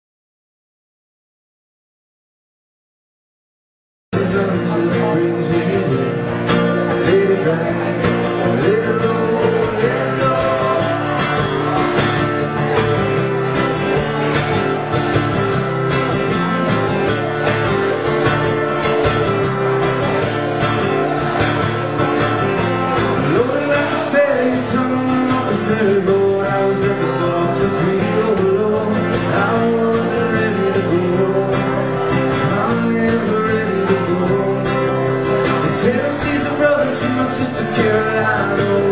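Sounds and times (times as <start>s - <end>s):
man singing: 4.1s - 14.8s, 20.2s - 38.9s
strummed acoustic guitar: 4.2s - 38.9s.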